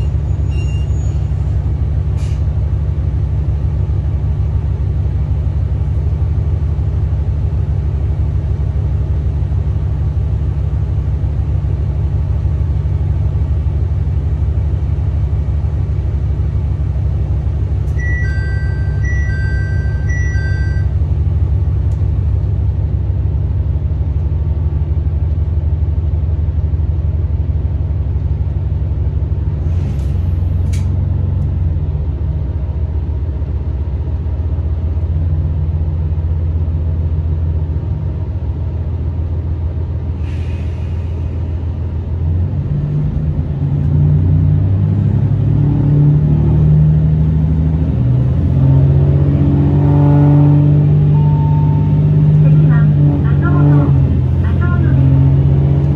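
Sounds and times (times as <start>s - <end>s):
railcar diesel engine hum: 0.0s - 55.9s
brief hisses: 40.2s - 41.3s.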